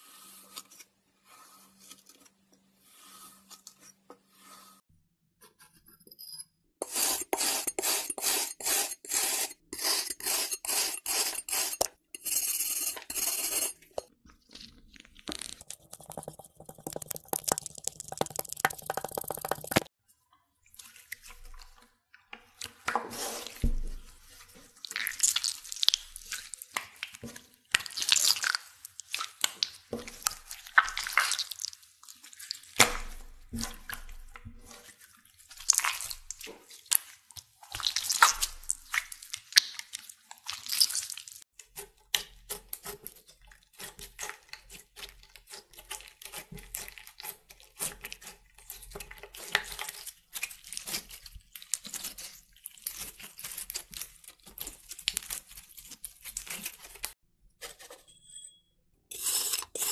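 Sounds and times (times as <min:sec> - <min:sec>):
slime squelching and crackling: 0:14.2 - 0:19.9, 0:24.7 - 0:32.9, 0:34.8 - 0:41.4, 0:44.0 - 0:57.2.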